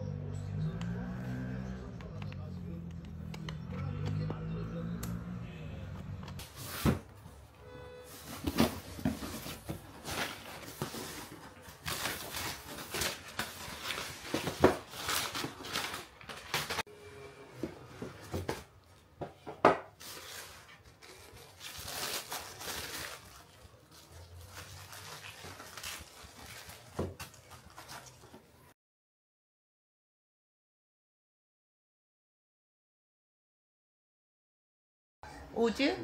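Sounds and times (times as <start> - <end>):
tissue paper rustling: 8.1 - 16.8, 20.0 - 28.5.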